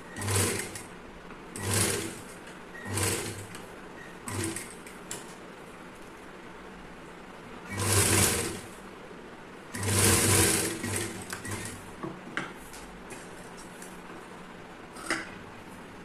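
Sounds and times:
electric sewing machine stitching: 0.0s - 0.9s, 1.6s - 3.5s, 4.2s - 4.7s, 7.7s - 8.7s, 9.7s - 11.8s.

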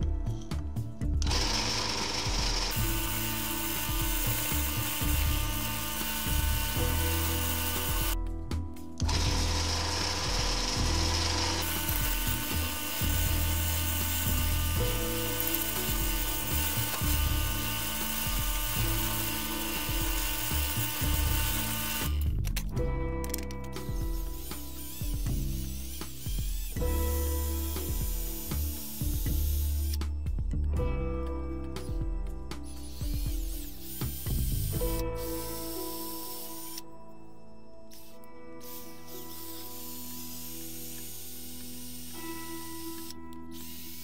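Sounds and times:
background music: 0.0s - 44.0s
drill press boring into wood: 1.2s - 8.2s, 9.0s - 22.2s, 38.0s - 44.0s.

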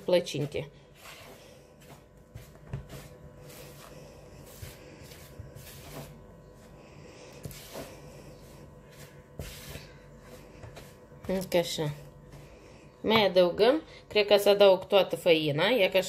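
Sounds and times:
spoon scraping dough in bowl: 7.4s - 11.8s.

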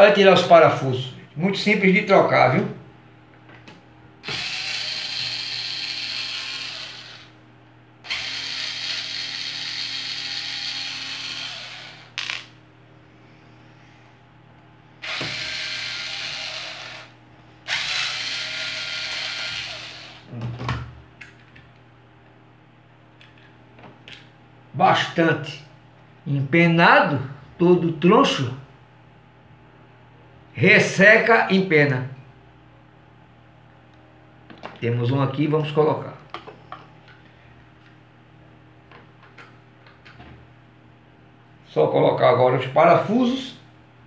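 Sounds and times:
electric screwdriver running: 4.2s - 7.3s, 8.0s - 12.4s, 15.0s - 17.1s, 17.7s - 20.3s.

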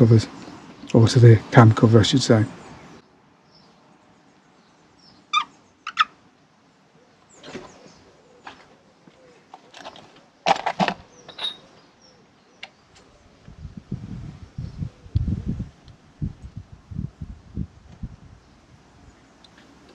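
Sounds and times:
clicks and knocks of handling engine parts: 8.4s - 11.8s.

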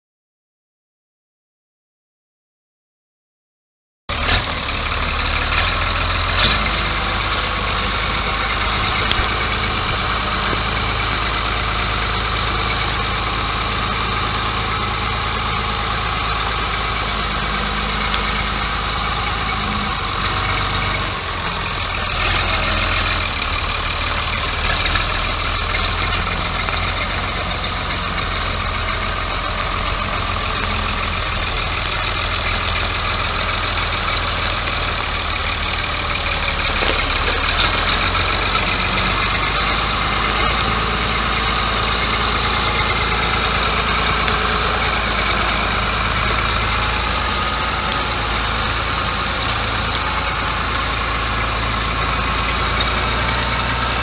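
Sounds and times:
tractor diesel engine idling: 4.1s - 54.0s.

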